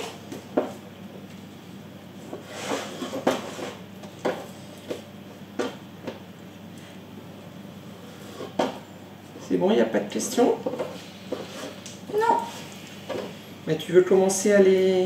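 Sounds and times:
rustling scrape: 2.4 - 3.8, 10.9 - 13.4.

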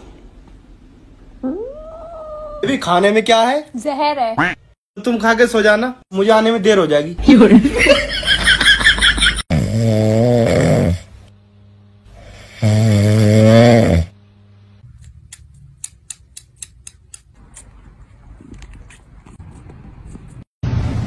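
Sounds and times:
dog snoring loudly: 9.5 - 11.1, 12.2 - 14.2.

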